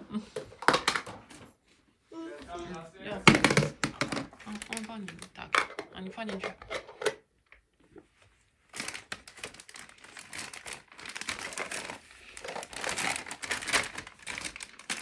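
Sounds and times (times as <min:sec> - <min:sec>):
plastic bag crinkling: 0:03.5 - 0:05.6, 0:08.7 - 0:15.0.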